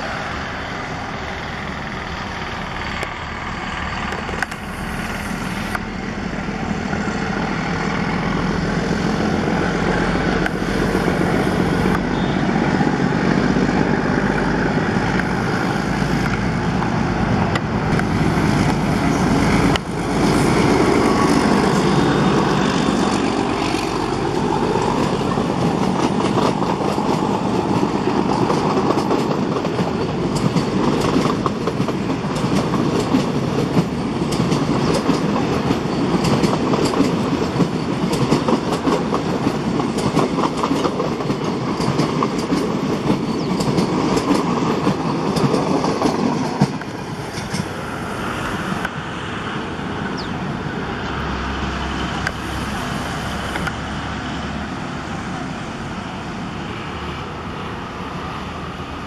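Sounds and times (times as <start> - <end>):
diesel locomotive engine running: 0.0 - 59.0
train wheels clacking over rail joints: 13.3 - 47.8.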